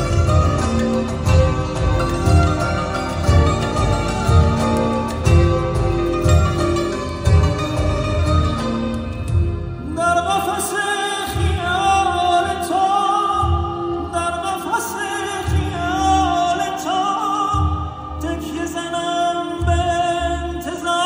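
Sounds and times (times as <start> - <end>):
low beat: 0.0 - 10.6
orchestral accompaniment: 0.0 - 12.8
man singing ornamented melody: 9.8 - 21.0.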